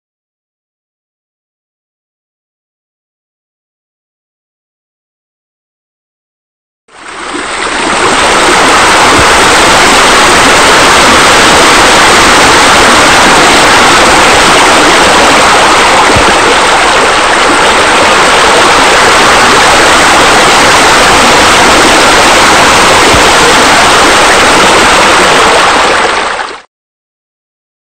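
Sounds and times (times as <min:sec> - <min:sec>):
rushing splashing water: 0:06.9 - 0:26.7.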